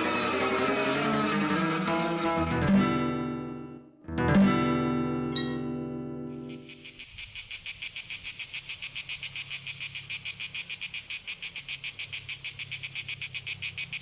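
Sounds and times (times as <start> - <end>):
cicada buzzing: 6.4 - 14.0.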